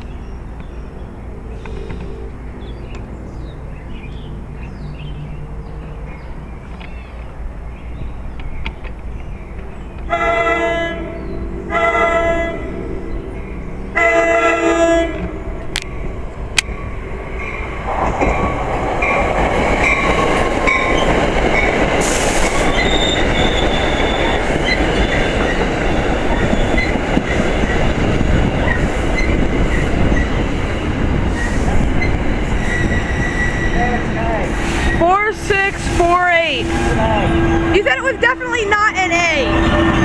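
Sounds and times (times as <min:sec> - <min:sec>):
train wheels rumbling: 0:00.0 - 0:40.0
train horn blast: 0:10.1 - 0:15.5, 0:34.9 - 0:40.0
high wheel squeals: 0:22.2 - 0:25.6, 0:31.4 - 0:38.6.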